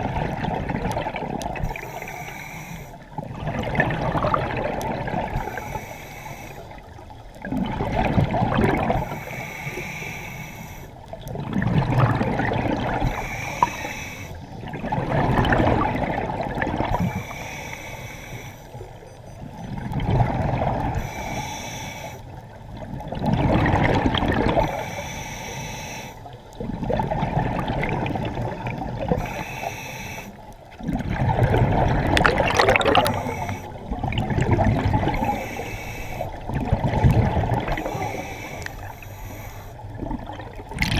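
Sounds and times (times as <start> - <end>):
exhaled air bubbling: 0.0 - 2.1, 3.0 - 9.4, 11.0 - 17.4, 18.8 - 21.1, 22.3 - 24.9, 26.2 - 29.7, 30.5 - 40.9
regulator inhale hiss: 1.6 - 3.2, 5.4 - 7.0, 9.0 - 11.2, 13.0 - 14.6, 16.9 - 19.0, 20.9 - 22.4, 24.6 - 26.5, 29.1 - 30.6, 32.9 - 33.9, 35.1 - 36.5, 37.7 - 40.0.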